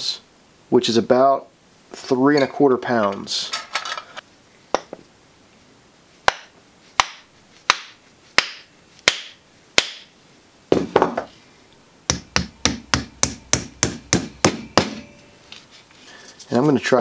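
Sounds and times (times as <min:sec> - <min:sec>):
sharp wooden knocks: 0:12.1 - 0:15.1.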